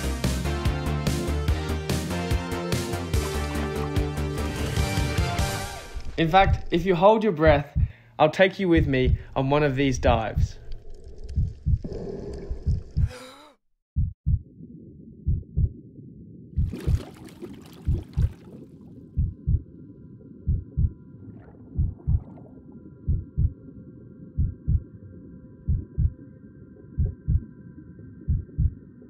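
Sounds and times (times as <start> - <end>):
slow heartbeat thumps: 5.6 - 8.0, 8.8 - 13.2, 14.0 - 14.5, 15.2 - 15.9, 16.6 - 17.2, 17.8 - 19.7, 20.4 - 23.6, 24.3 - 24.9, 25.6 - 26.2, 26.9 - 27.5, 28.2 - 28.8
low underwater rumble: 8.8 - 13.1, 14.0 - 29.0.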